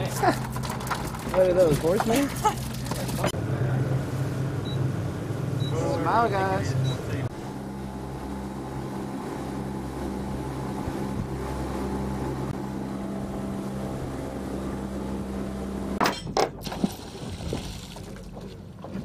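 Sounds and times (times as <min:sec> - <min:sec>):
outboard motors droning: 0:00.0 - 0:19.0
anchor chain clanking: 0:00.1 - 0:03.3.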